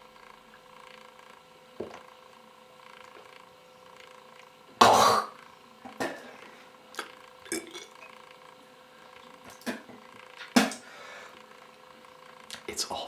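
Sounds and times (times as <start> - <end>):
person swallowing a drink: 6.9 - 8.0.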